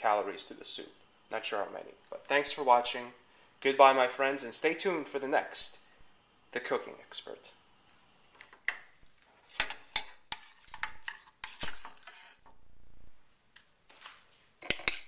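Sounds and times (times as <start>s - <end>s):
metal spoon clinking on saucepan: 14.6s - 15.0s.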